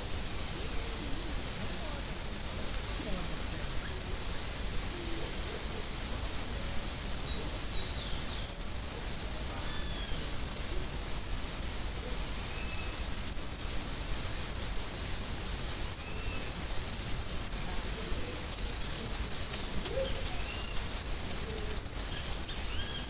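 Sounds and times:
steady microphone hiss: 0.0 - 23.0
faint bird chirps: 7.2 - 8.6, 9.5 - 10.3, 12.4 - 13.0, 16.0 - 16.6, 18.7 - 23.0
faint ticks: 18.5 - 22.6.

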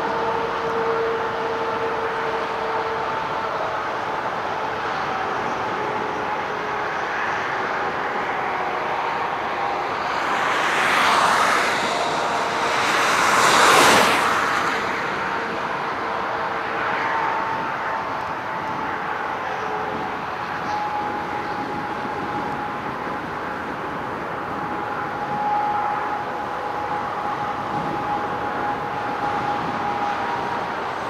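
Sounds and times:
distant jet engines humming: 0.0 - 31.0
rushing noise: 0.0 - 31.0
wind noise: 0.0 - 31.0.

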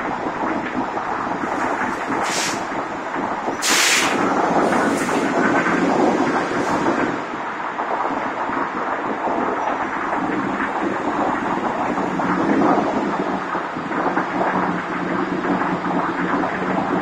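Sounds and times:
bus engine rumbling: 0.0 - 17.0
sharp air hisses: 1.4 - 2.9, 3.5 - 7.2.

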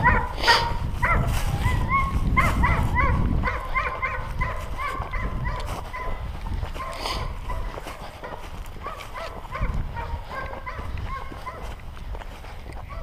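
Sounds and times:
dog yipping and whining: 0.0 - 6.2.

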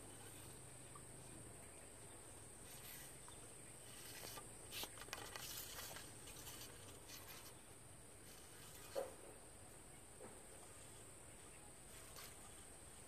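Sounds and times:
small clicks and rustles: 2.7 - 9.3.

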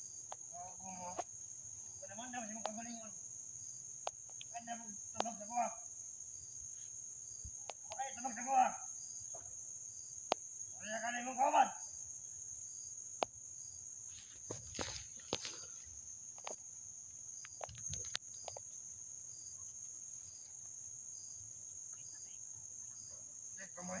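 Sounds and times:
faint insect chirp: 0.0 - 24.0
insects droning high trill: 0.0 - 24.0
snaps and rustles in undergrowth: 14.2 - 16.6, 17.4 - 20.7.

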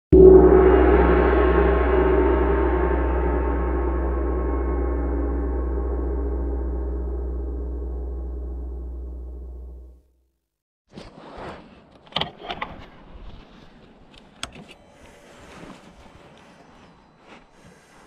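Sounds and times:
deep cinematic hit: 0.1 - 10.1
low rumble: 0.1 - 10.1
ringing tones: 0.2 - 10.0.

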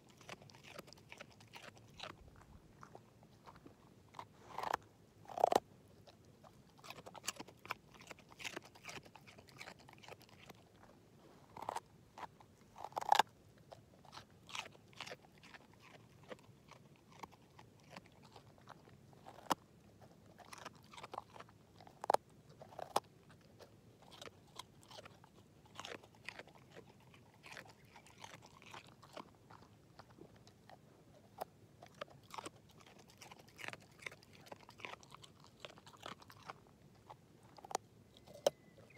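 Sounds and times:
dog crunching a carrot: 0.0 - 38.9.

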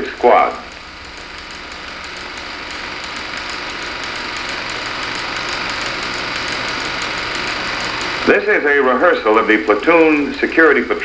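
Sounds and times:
faint rapid ticking: 0.0 - 8.4.

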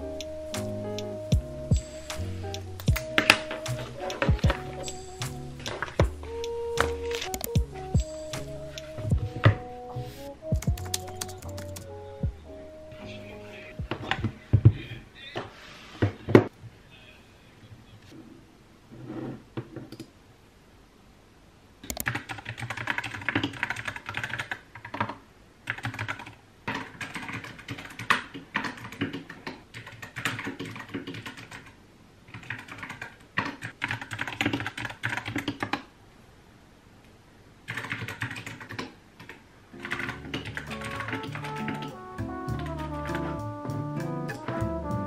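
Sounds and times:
music with bass line: 0.0 - 12.6, 40.1 - 45.0
fast mechanical keyboard typing: 10.6 - 11.8, 21.9 - 35.8, 37.7 - 42.0.

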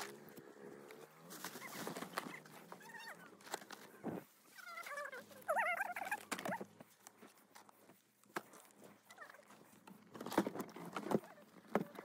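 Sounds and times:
knocks and rustles: 0.9 - 4.3, 6.0 - 12.0
bags shifted in car boot: 1.2 - 2.4
warbling animal call: 1.5 - 6.7.

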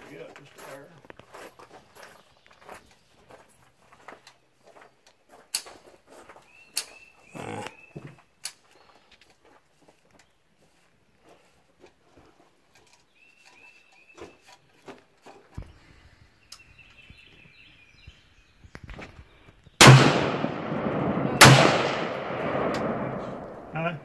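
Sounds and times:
rifle shots echoing: 19.8 - 24.0.

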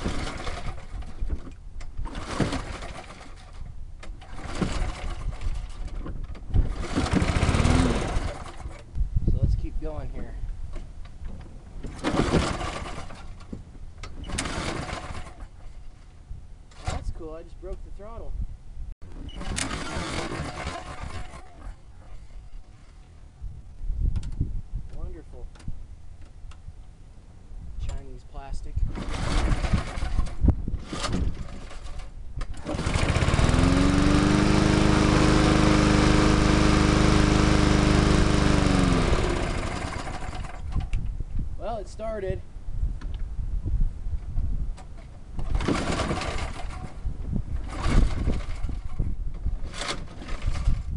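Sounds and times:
mower engine recoil starter pulls: 0.0 - 8.9, 10.7 - 16.0, 16.7 - 17.8, 19.1 - 23.0, 28.8 - 41.0, 44.8 - 50.9.

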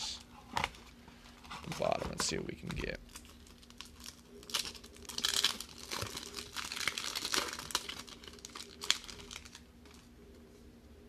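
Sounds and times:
foil wrapper crinkling: 1.6 - 10.1.

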